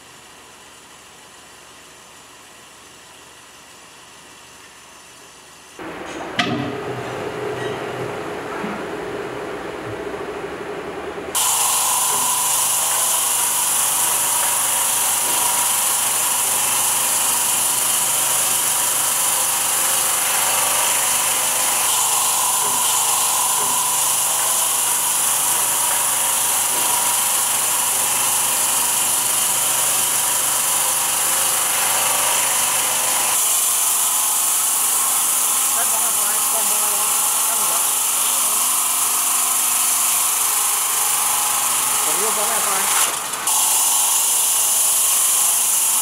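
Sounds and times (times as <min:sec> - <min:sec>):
stone-cutting saw whining: 0:11.3 - 0:46.0.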